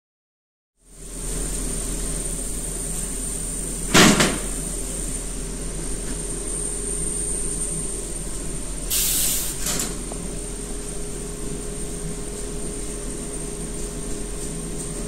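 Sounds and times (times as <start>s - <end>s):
machine hum: 0.9s - 15.0s
loud clunk: 3.9s - 4.6s
short high hiss: 8.9s - 9.8s.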